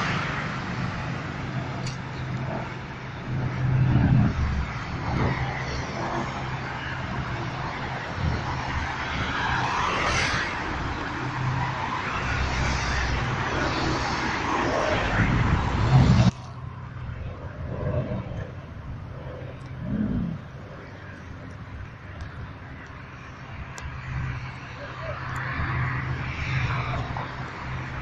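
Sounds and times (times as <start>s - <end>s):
cars driving past: 0.0s - 28.0s.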